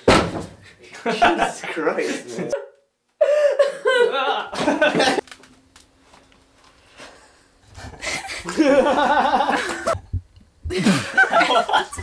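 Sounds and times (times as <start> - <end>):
people laughing out loud: 3.6 - 5.2, 8.0 - 10.0, 10.7 - 12.0.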